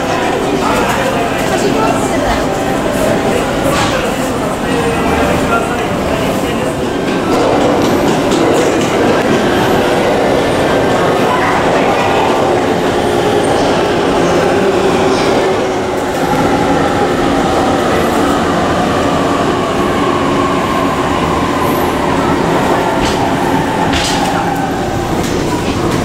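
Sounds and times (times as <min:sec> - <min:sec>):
electric train rumbling slowly: 0:00.0 - 0:26.0.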